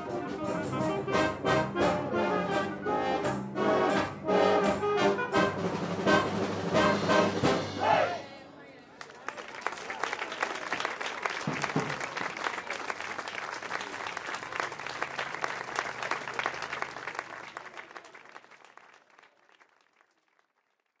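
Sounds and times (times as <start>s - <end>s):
audience applauding: 9.0s - 21.0s.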